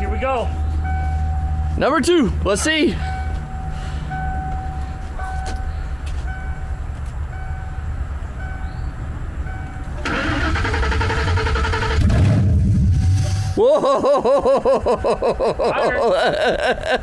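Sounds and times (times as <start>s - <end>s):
warning chime beeping: 0.4s - 10.0s
engine cranking and starting: 9.9s - 13.6s.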